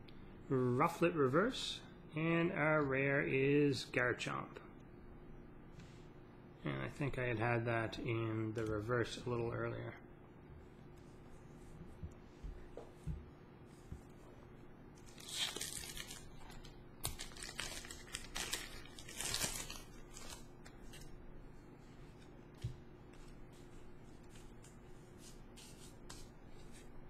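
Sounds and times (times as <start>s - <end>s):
foil wrapper tearing and crinkling: 15.0s - 21.1s.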